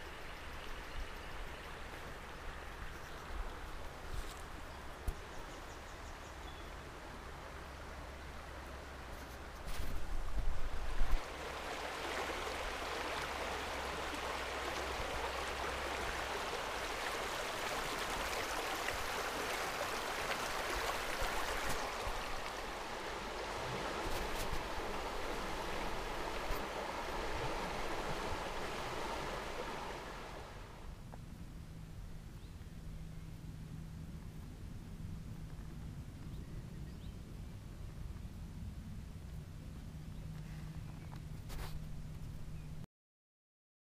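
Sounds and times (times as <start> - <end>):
river water rushing: 10.6 - 30.9.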